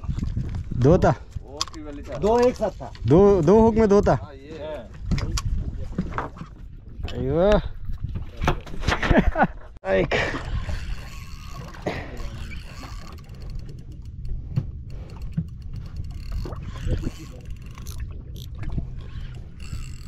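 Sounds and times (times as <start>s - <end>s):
boat engine humming: 10.3s - 20.0s.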